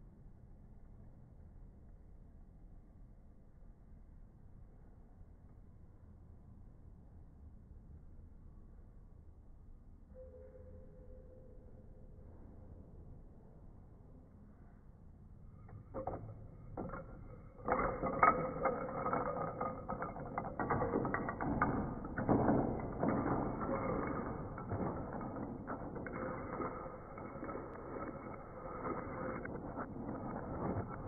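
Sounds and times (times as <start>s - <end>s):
wooden pencils clattering: 16.8s - 31.0s.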